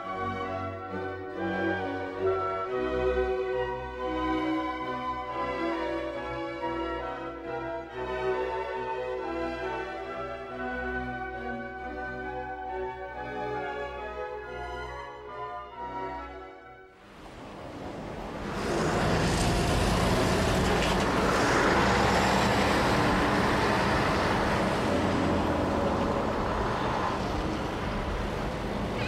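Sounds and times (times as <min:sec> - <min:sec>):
city street traffic: 0:17.0 - 0:29.0.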